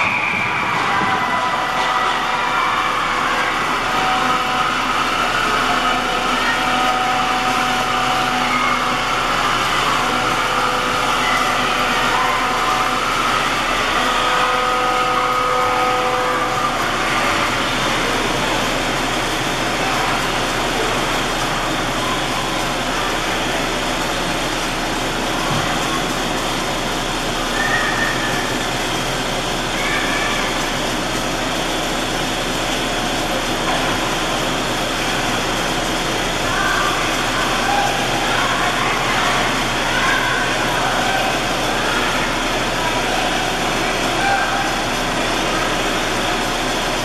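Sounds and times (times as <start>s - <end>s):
constant hum and hiss: 0.0s - 47.0s
ice arena rushing din: 0.0s - 47.0s
indistinct voices: 0.0s - 47.0s
children's high calls: 27.4s - 28.8s, 29.4s - 30.9s.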